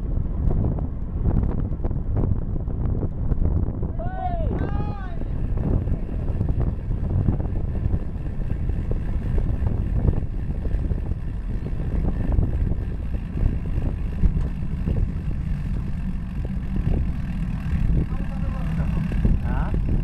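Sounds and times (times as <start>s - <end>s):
tyre and road rumble: 0.0s - 20.0s
wind buffeting microphone: 0.0s - 20.0s.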